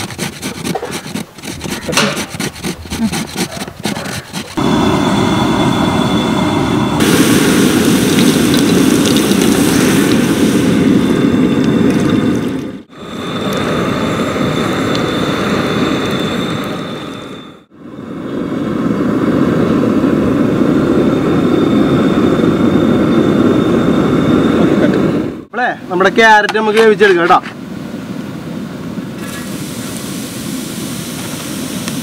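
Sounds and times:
carrots grated on hand grater: 0.0 - 4.6.

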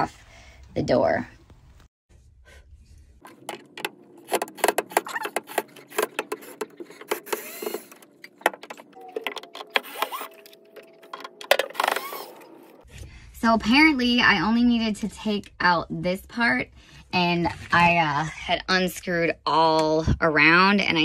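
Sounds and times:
drill motor whining: 5.0 - 8.0.

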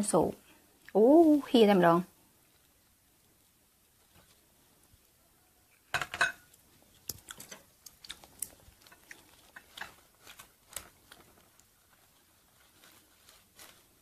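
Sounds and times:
ceramic bowl set down: 5.9 - 6.5
chopsticks tossing salad in bowl: 6.5 - 14.0.

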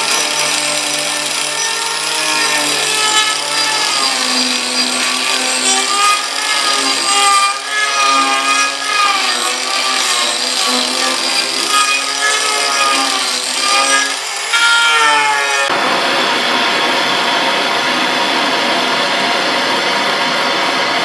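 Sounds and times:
angle grinder grinding wood: 0.0 - 15.9.

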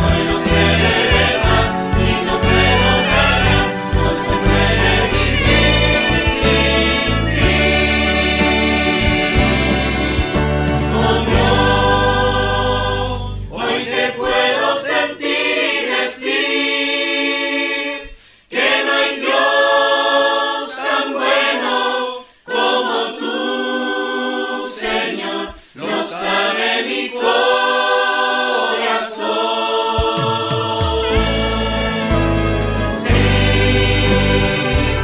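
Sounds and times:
low band backing: 0.0 - 14.1, 30.0 - 35.0
choir singing: 0.0 - 35.0.

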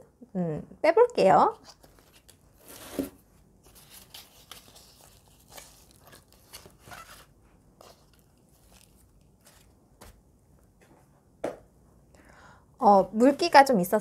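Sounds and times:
plastic pot crinkling: 1.7 - 9.8
potting soil rustling: 1.7 - 9.8.

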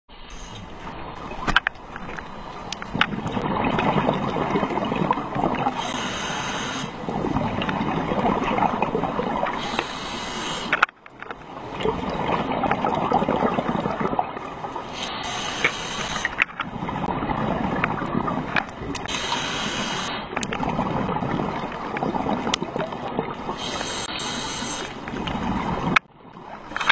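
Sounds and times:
underwater rushing and crackling: 0.1 - 26.9
short hissing: 0.3 - 0.8, 5.8 - 7.0, 9.6 - 10.8, 14.9 - 16.4, 19.1 - 20.3, 23.5 - 25.0.

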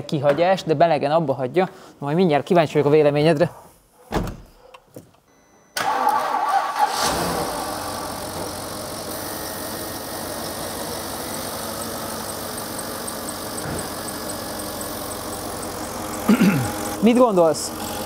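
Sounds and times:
car engine idling: 6.9 - 18.0.

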